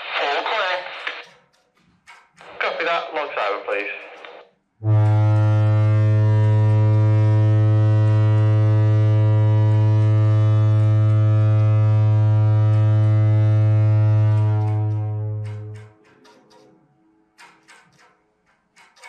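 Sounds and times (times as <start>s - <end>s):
low-pitched horn blast: 4.8s - 16.0s.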